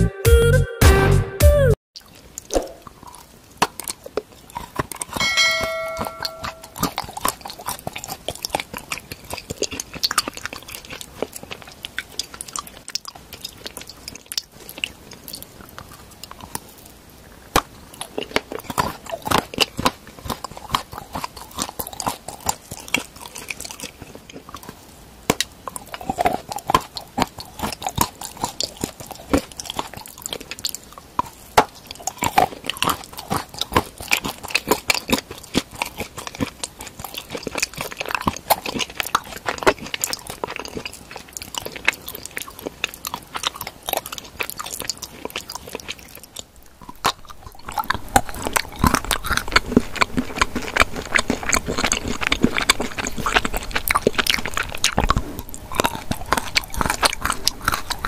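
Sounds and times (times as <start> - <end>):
chocolate crunching: 2.0 - 58.0
wet mouth sounds: 2.0 - 58.0
short ringing chime: 5.2 - 6.8.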